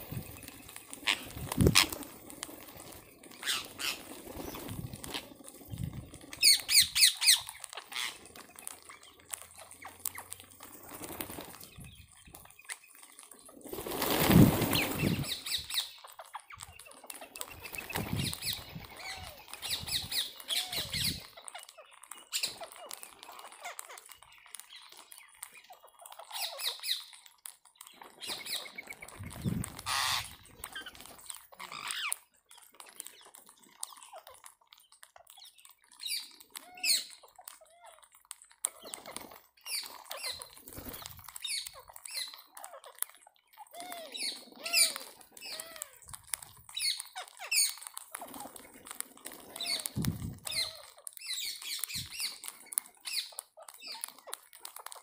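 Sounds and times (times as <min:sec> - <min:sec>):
parakeets squawking: 0:00.0 - 0:05.6, 0:06.3 - 0:10.3, 0:14.0 - 0:24.1, 0:28.2 - 0:32.2, 0:43.6 - 0:46.1, 0:46.7 - 0:55.0
beaks pecking grain: 0:00.0 - 0:55.0.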